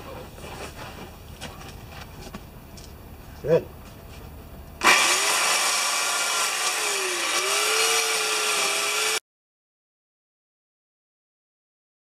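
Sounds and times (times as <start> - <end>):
electric chainsaw cutting wood: 4.8 - 9.2.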